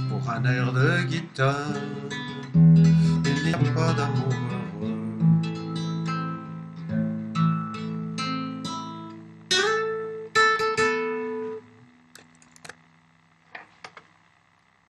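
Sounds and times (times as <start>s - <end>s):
acoustic guitar playing: 0.0s - 12.4s.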